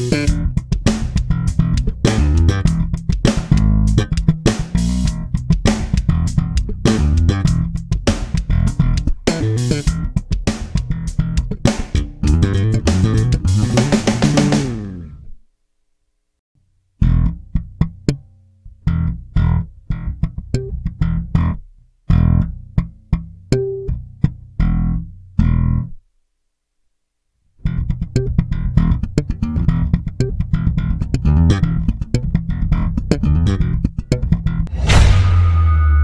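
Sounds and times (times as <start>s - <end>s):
slap bass notes: 0.0s - 15.3s, 27.6s - 36.0s
bright crash with low tone: 34.7s - 36.0s.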